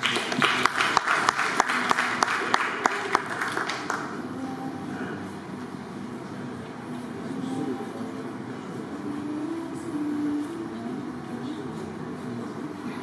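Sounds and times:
audience applauding: 0:00.0 - 0:04.2.

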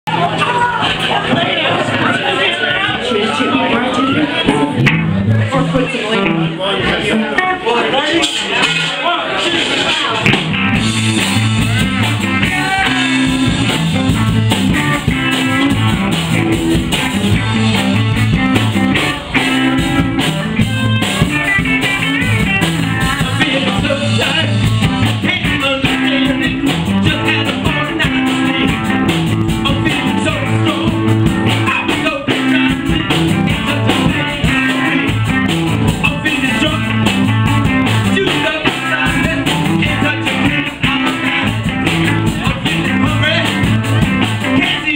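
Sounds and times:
live rock band with horns: 0:00.1 - 0:44.9
man singing lead: 0:02.6 - 0:07.6, 0:10.8 - 0:16.0, 0:22.4 - 0:44.9.

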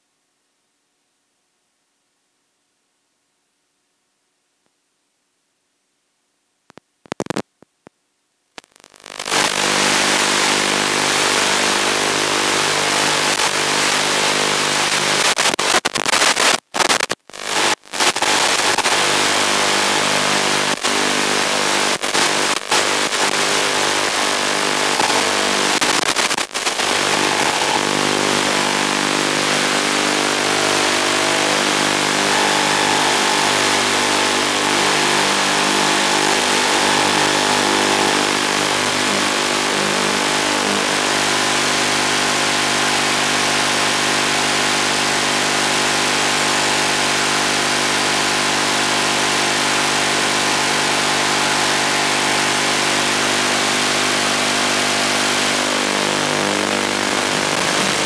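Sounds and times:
static hiss with buzzing hum: 0:00.0 - 0:58.0.

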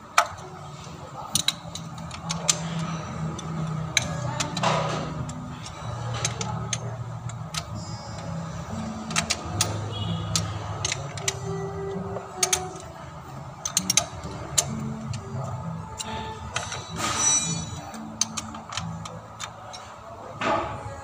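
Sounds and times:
socket wrench metal clicks: 0:13.6 - 0:15.3, 0:17.8 - 0:19.9.

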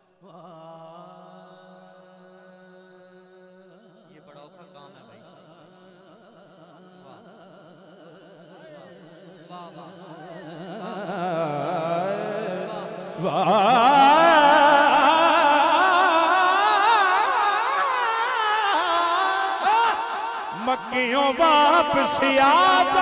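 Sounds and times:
man singing melismatic phrase: 0:13.2 - 0:23.0.

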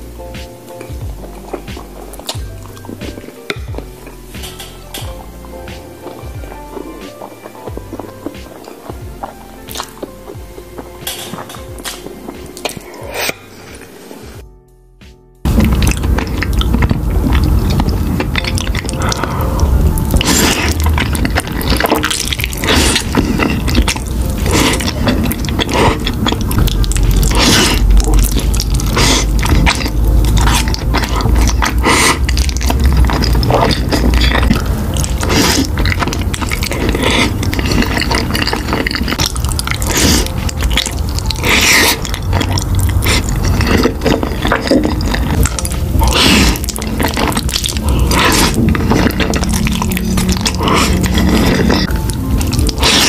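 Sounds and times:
chewing: 0:00.7 - 0:13.9, 0:15.5 - 0:53.0
slurping noodles: 0:15.5 - 0:53.0.

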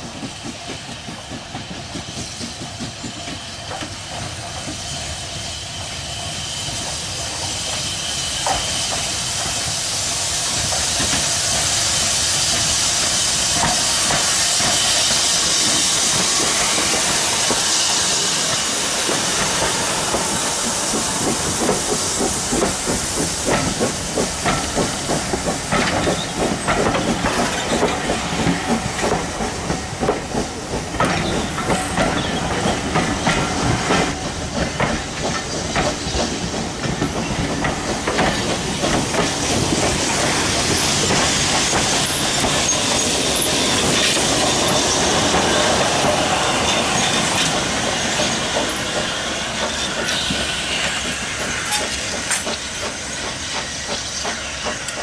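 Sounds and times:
steam locomotive hissing: 0:00.0 - 0:55.0
train wheels clicking over rail joints: 0:00.0 - 0:55.0.

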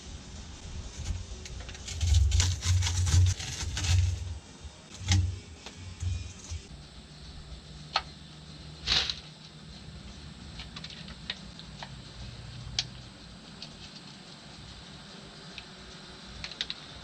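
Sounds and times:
tape tearing rasp: 0:01.0 - 0:06.7
tape clicks and crackles: 0:04.9 - 0:06.7, 0:10.5 - 0:12.0, 0:16.4 - 0:16.9.

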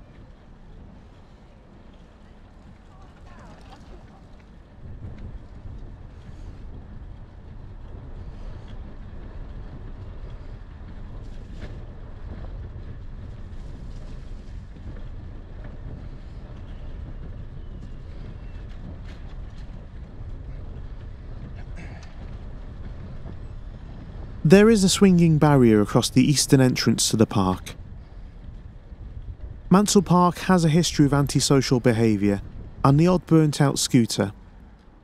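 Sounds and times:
bicycle tyres rolling on tarmac: 0:00.0 - 0:24.5, 0:27.7 - 0:30.1
wind buffeting microphone: 0:00.0 - 0:31.6, 0:32.2 - 0:33.2.

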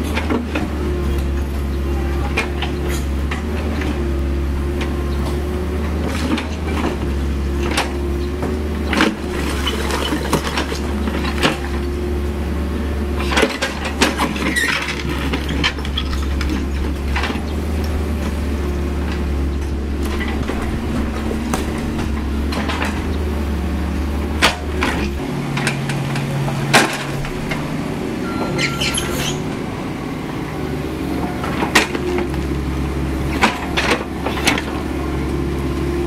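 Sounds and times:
diesel engine running: 0:00.0 - 0:36.0
hydraulics working: 0:00.1 - 0:35.2
bucket knocking and scraping stones: 0:09.2 - 0:11.6.

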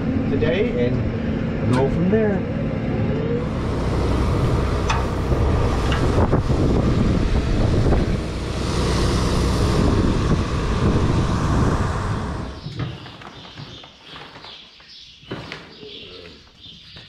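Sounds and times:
low rumble: 0:00.0 - 0:12.7
wind on microphone: 0:03.4 - 0:12.7
water spraying from hose onto hay: 0:03.6 - 0:12.4.

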